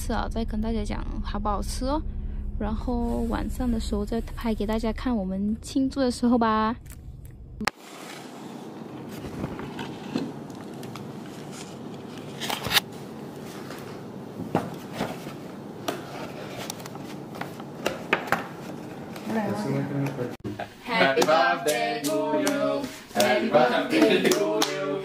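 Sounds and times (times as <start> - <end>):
room noise: 6.8 - 25.0.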